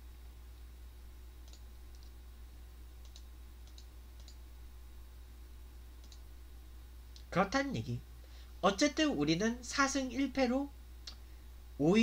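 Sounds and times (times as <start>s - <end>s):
steady low hum: 0.0s - 12.0s
faint short clicks: 6.0s - 6.2s, 11.0s - 11.2s.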